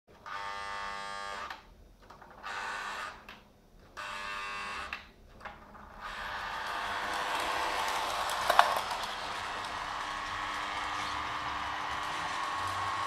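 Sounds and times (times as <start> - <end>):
toy train rumbling on track: 5.6 - 13.0.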